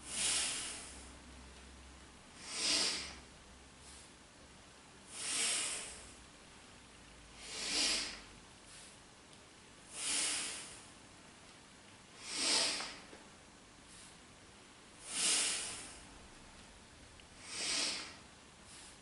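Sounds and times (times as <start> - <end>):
person breathing forcefully: 0.0 - 1.2, 2.4 - 4.2, 5.0 - 6.2, 7.3 - 9.0, 9.9 - 11.0, 12.1 - 13.1, 15.0 - 16.2, 17.4 - 19.0.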